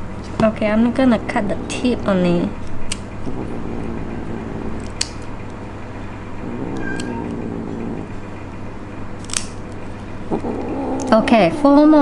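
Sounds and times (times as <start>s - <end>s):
cat meowing: 6.5s - 8.0s
nail clippers clicking: 9.2s - 9.6s.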